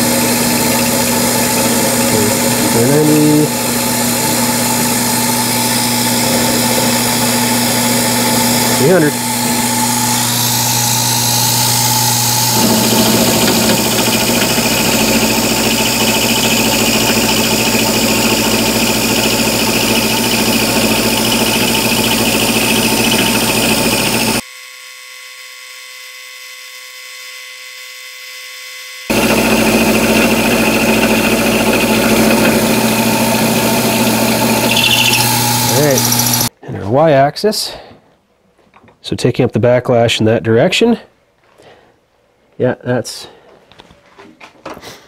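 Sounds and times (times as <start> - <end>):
metal cutting noise: 0.0 - 24.4, 29.1 - 36.5
milling machine hum: 0.0 - 24.4, 29.1 - 36.5.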